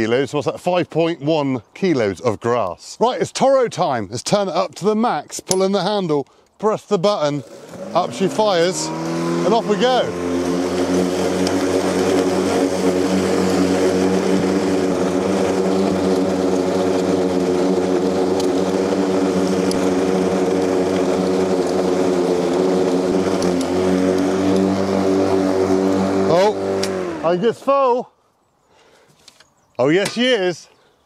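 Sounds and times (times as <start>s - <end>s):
electric lawn mower humming: 7.3s - 27.6s.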